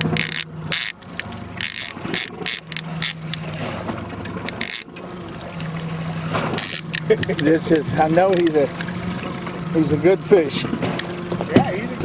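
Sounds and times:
fishing reel ratcheting: 0.0 - 3.4, 4.2 - 4.9, 6.6 - 8.9
boat motor humming: 0.0 - 12.0.

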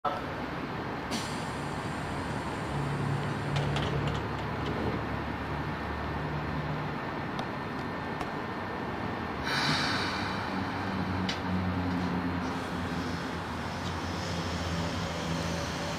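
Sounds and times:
train equipment humming: 9.4 - 15.9.

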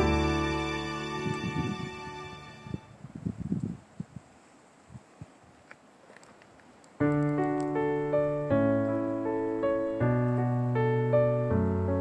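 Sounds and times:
piano playing held chords: 0.0 - 2.8, 7.1 - 12.0
faint ambient sound: 0.0 - 2.9.

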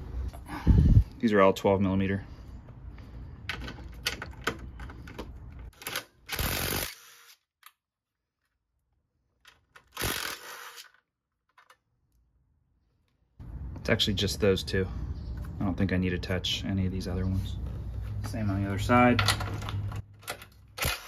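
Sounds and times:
impact driver rattly clicking: 9.5 - 11.0, 20.2 - 21.0.

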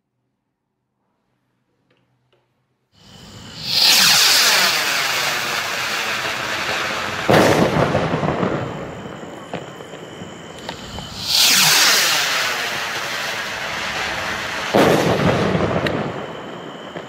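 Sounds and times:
firework rocket hissing: 3.0 - 17.0
firework bang: 3.5 - 17.0.

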